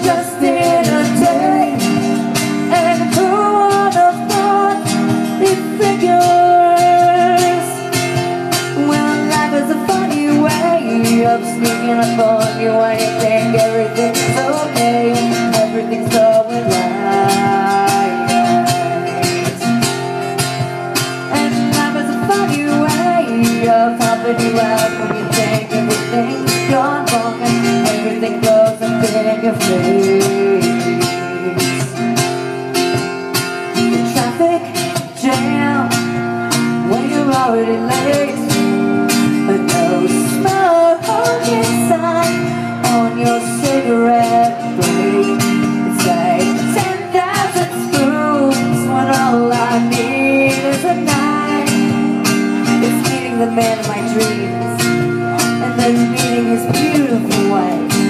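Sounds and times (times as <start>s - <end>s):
person singing: 0.0s - 32.5s, 33.6s - 58.0s
strummed acoustic guitar: 0.0s - 58.0s.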